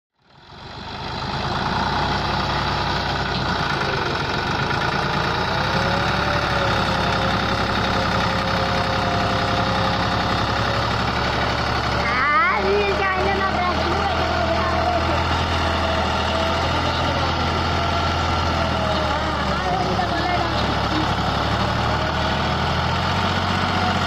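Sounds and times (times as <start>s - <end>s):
tractor diesel engine under load: 0.1s - 24.0s.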